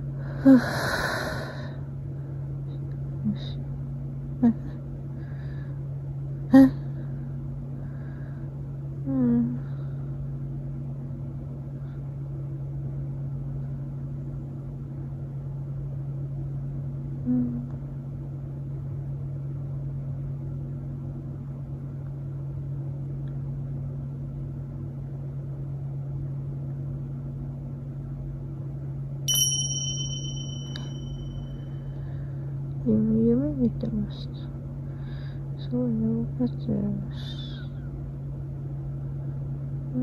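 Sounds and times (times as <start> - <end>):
sharp ringing click: 29.3 - 31.5.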